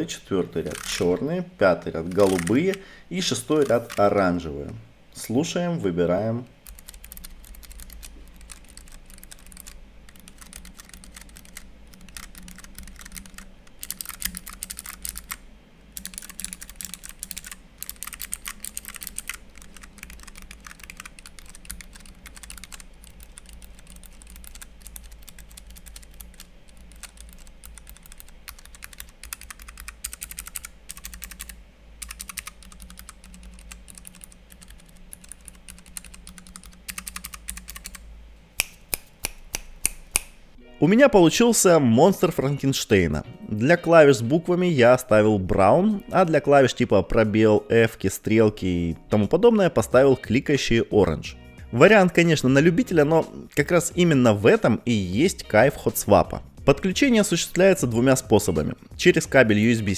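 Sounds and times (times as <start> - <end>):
mechanical keyboard typing: 0.6 - 1.1, 2.0 - 2.8, 3.4 - 4.2, 6.6 - 38.0.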